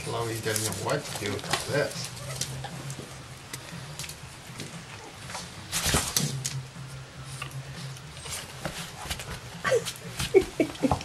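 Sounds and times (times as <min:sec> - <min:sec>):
dogs rustling on cloth: 0:00.0 - 0:03.2
steady low hum: 0:00.0 - 0:10.9
dogs snuffling: 0:07.2 - 0:11.0.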